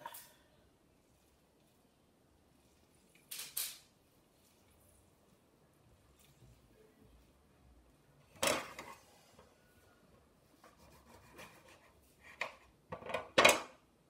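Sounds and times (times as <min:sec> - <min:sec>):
hands rubbing lemons: 0:04.0 - 0:08.0.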